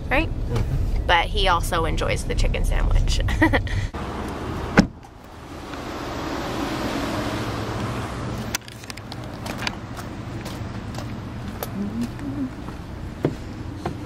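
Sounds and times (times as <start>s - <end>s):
faint traffic noise: 0.0s - 14.0s
car driving past: 3.9s - 8.6s
sharp thump: 4.7s - 5.1s.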